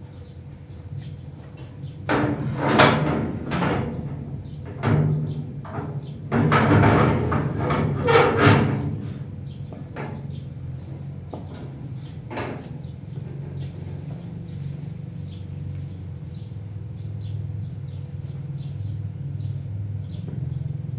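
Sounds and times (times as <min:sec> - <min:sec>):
birds chirping: 0:00.0 - 0:02.1, 0:03.8 - 0:06.5, 0:07.1 - 0:20.9
low hum: 0:00.0 - 0:20.9
iron door hinges creaking: 0:01.5 - 0:14.4.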